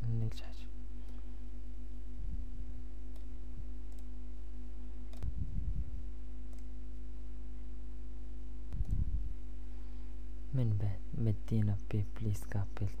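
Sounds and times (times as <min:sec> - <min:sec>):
low electrical hum: 0:00.0 - 0:13.0
computer mouse clicks: 0:03.1 - 0:04.1, 0:05.1 - 0:05.4, 0:06.5 - 0:06.8, 0:08.7 - 0:09.0.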